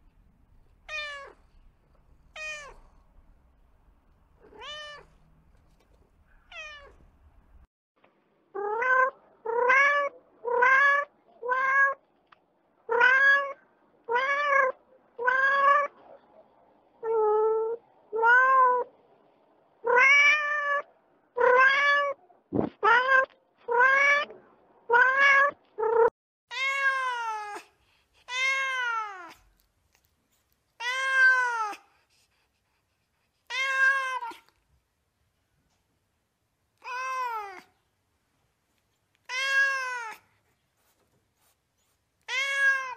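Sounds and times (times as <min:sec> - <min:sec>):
cat meowing: 0:00.9 - 0:01.4, 0:02.3 - 0:02.8, 0:04.4 - 0:05.1, 0:06.5 - 0:07.0, 0:08.6 - 0:12.0, 0:12.9 - 0:16.0, 0:19.8 - 0:22.2, 0:22.8 - 0:29.4, 0:30.8 - 0:31.8, 0:33.4 - 0:34.6, 0:36.8 - 0:37.8, 0:39.2 - 0:40.3, 0:42.2 - 0:42.9.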